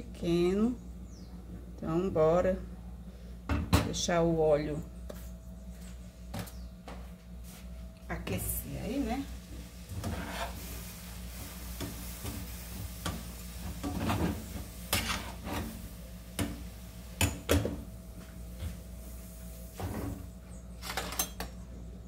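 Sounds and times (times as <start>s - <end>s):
dishes and utensils clattering: 20.8s - 21.6s.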